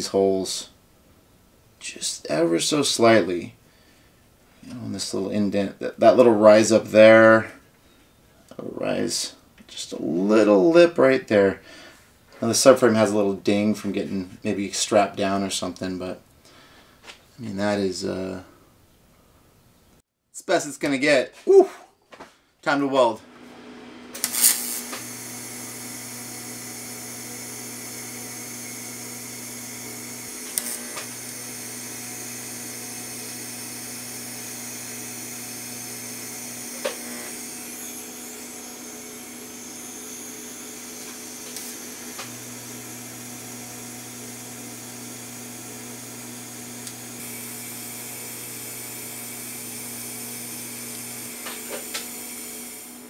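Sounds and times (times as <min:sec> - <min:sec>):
machine hum: 0:23.2 - 0:53.0
welding arc buzzing: 0:23.6 - 0:53.0.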